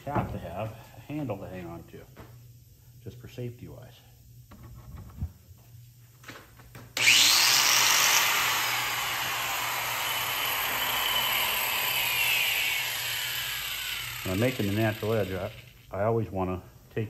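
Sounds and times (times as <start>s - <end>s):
angle grinder motor whining: 7.0s - 15.9s.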